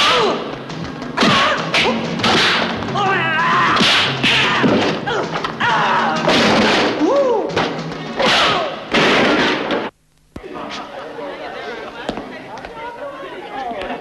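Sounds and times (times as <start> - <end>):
shouted fighting cries: 3.0 - 6.3
punch and kick impacts: 3.7 - 5.2.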